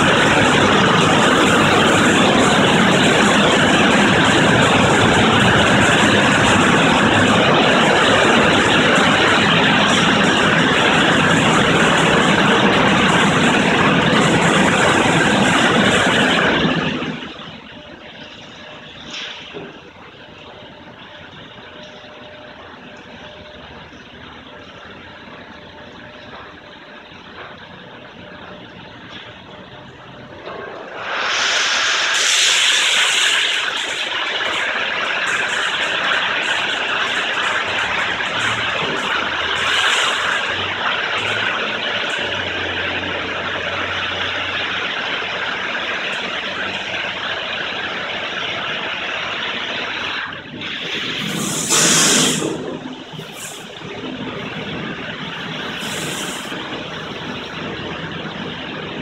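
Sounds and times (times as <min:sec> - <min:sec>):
car wash machinery hum: 0:00.0 - 0:59.0
high-pressure water spray hissing: 0:30.8 - 0:58.6.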